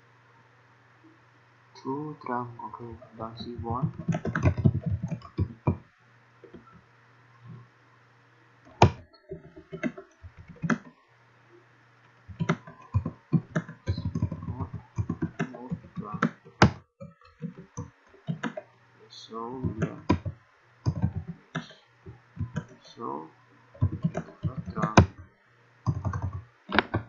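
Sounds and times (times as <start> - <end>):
low steady hum: 0.0 - 27.0
computer keyboard typing: 3.4 - 5.8, 8.7 - 11.0, 12.2 - 18.7, 19.6 - 22.8, 23.8 - 25.2, 25.8 - 27.0.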